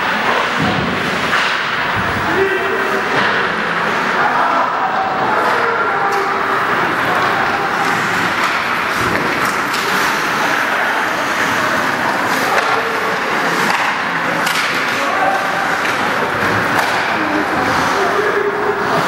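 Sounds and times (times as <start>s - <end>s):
hockey sticks and puck clacking: 0.0s - 4.3s, 5.1s - 19.0s
skates scraping on ice: 6.5s - 19.0s.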